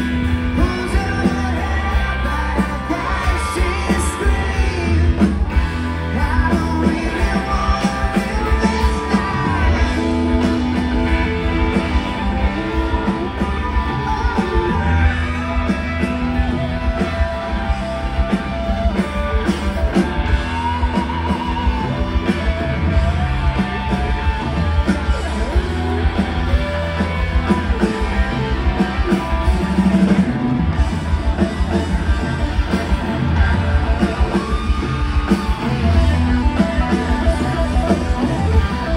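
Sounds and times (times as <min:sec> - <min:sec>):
person singing: 0:00.0 - 0:19.1
bass guitar: 0:00.0 - 0:38.9
drums: 0:00.0 - 0:38.9
electric guitar: 0:00.0 - 0:38.9.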